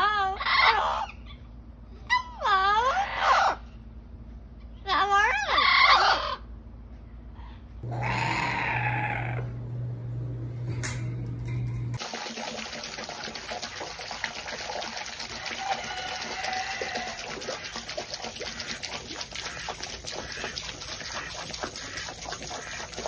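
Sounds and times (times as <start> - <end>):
hose spraying into pool: 12.0 - 23.0
water splashing and trickling: 12.0 - 23.0.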